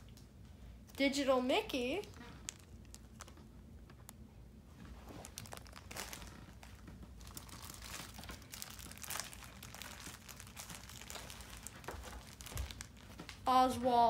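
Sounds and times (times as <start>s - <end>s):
plastic bags crinkling: 1.7s - 3.5s, 4.9s - 13.4s.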